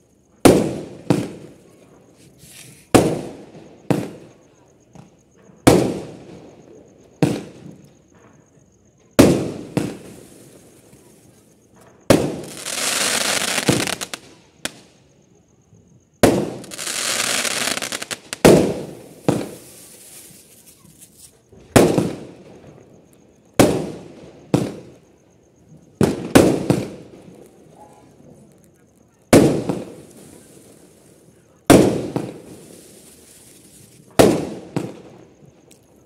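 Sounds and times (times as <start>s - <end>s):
fireworks bangs: 0.4s - 8.4s, 9.0s - 14.9s, 16.2s - 36.0s
fireworks stars hissing: 2.2s - 3.2s, 9.3s - 14.8s, 16.6s - 22.3s, 29.3s - 35.0s.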